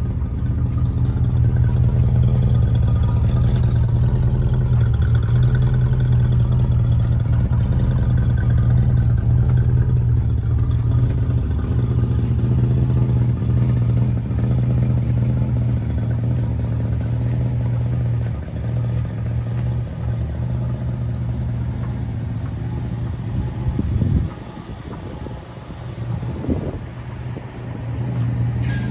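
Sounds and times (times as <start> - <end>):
car engine idling: 0.0 - 28.9.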